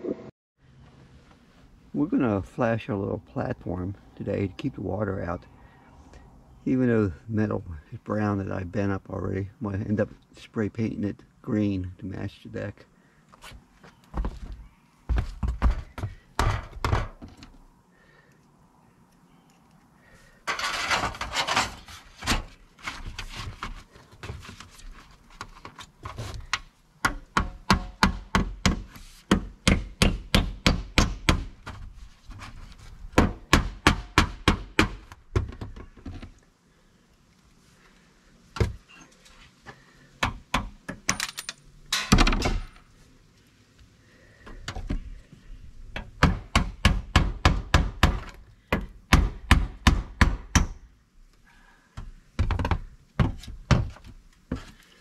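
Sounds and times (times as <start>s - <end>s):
sheet metal scraping: 20.5s - 23.4s.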